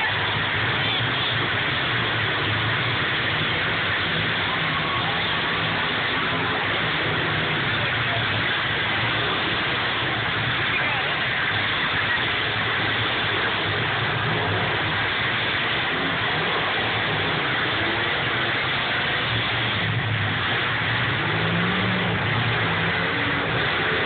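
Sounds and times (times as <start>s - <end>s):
car engines revving: 0.0s - 24.0s.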